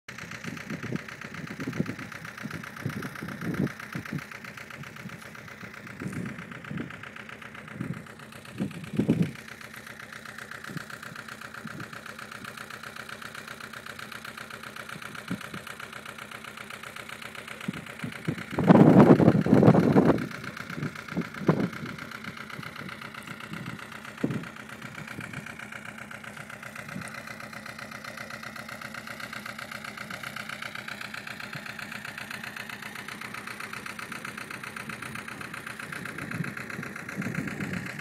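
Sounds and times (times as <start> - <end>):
motorcycle diesel engine idling: 0.1 - 38.0
wind buffeting microphone: 7.7 - 9.4, 17.7 - 22.1, 36.0 - 38.0.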